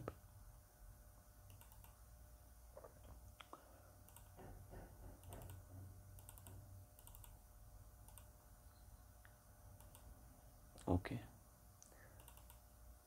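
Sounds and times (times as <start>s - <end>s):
low steady hum: 0.0s - 13.0s
computer mouse clicks: 1.5s - 2.0s, 2.8s - 4.4s, 5.2s - 5.6s, 6.2s - 7.4s, 8.0s - 8.3s, 9.8s - 10.1s, 11.8s - 12.7s.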